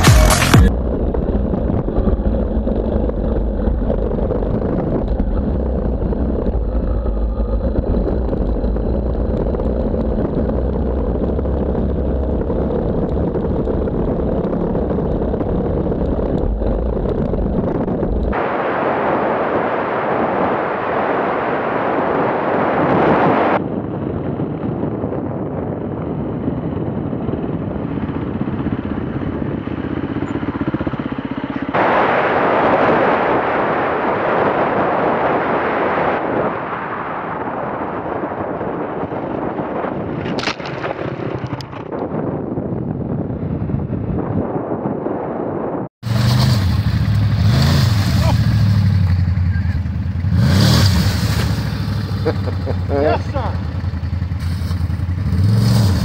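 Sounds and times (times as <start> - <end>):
off-road vehicle engines running: 0.0 - 18.4, 25.8 - 33.0, 46.0 - 56.0.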